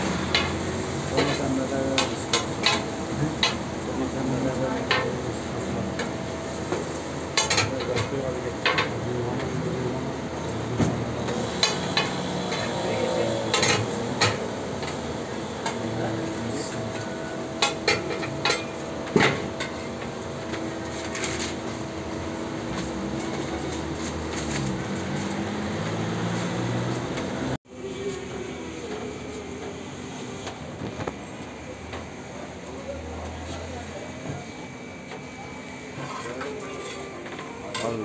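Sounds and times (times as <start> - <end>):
light sizzle: 0.0 - 5.4.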